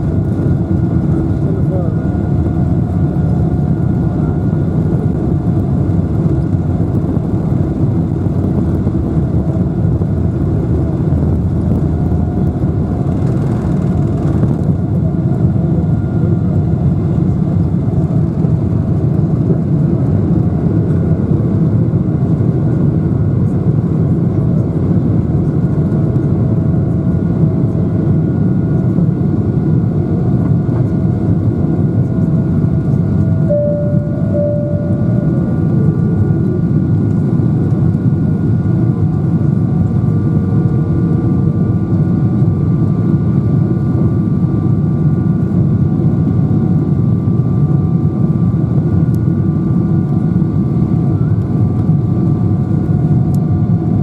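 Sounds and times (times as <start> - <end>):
jet engine cabin rumble: 0.0 - 54.0
faint steady tones: 33.5 - 36.0.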